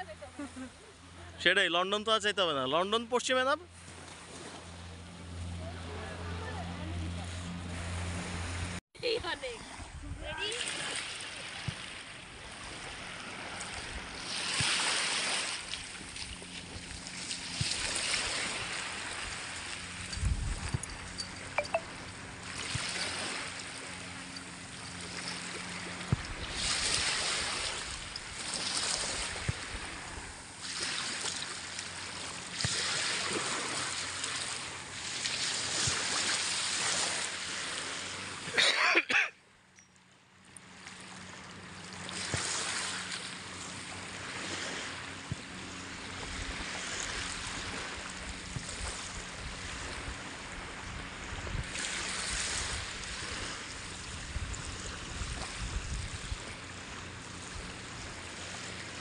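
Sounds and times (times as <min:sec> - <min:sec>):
small waves washing onto shore: 0:03.2 - 0:38.6, 0:40.4 - 0:59.0.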